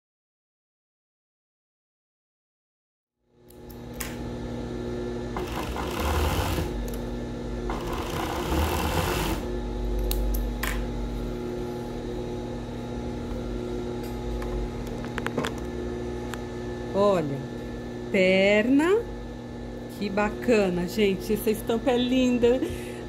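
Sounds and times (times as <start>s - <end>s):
industrial sewing machine running: 5.3s - 7.0s, 7.7s - 9.5s.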